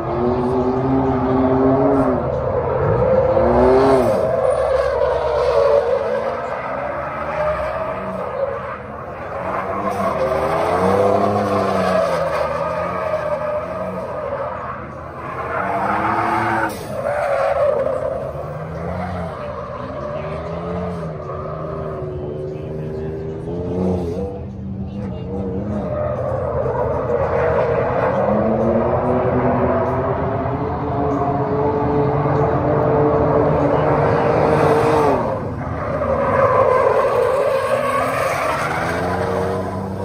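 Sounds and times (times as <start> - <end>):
engine revving: 0.0 - 5.8, 9.2 - 13.1, 18.2 - 40.0
tyres squealing on asphalt: 0.0 - 31.4, 32.1 - 40.0.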